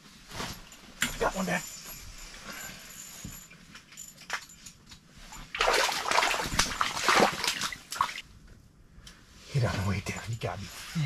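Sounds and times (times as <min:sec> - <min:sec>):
fish thrashing and splashing water: 0:05.5 - 0:08.2.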